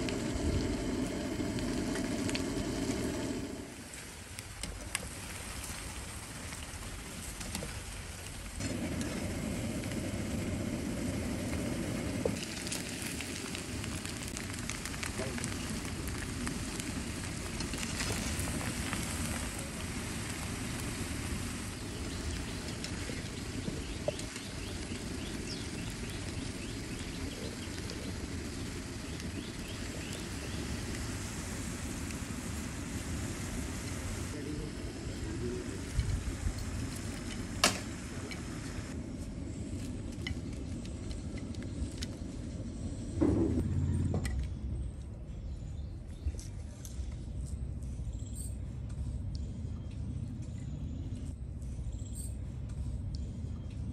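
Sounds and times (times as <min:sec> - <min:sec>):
low rumble: 0:00.0 - 0:04.0, 0:08.5 - 0:53.9
food deep-frying in oil: 0:00.0 - 0:38.9.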